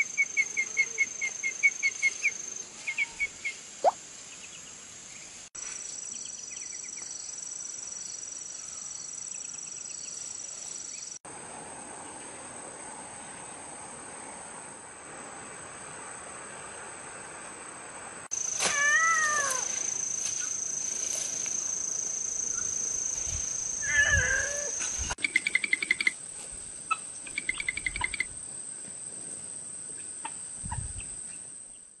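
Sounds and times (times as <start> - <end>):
insects droning: 0.0 - 32.0
cat meowing: 18.6 - 19.7, 23.8 - 24.7.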